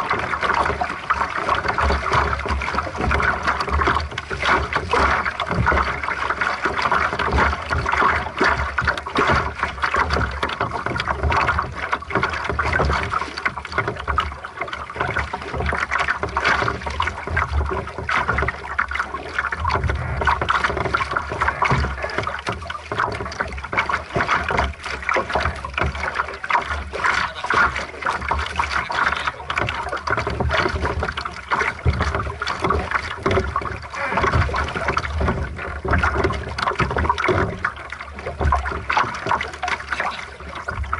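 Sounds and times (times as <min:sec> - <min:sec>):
water splashing against boat hull: 0:00.0 - 0:40.9
low rumble: 0:19.6 - 0:20.6.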